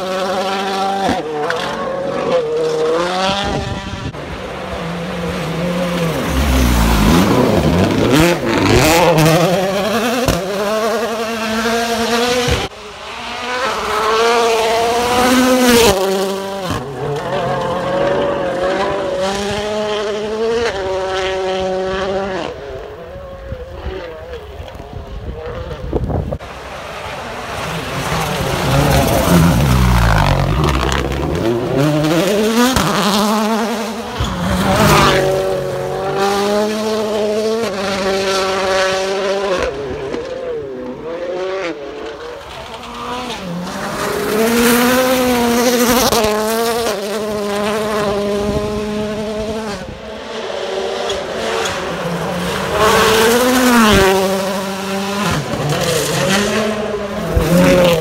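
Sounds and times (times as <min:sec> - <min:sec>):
rally car engine revving: 0:00.0 - 0:58.0.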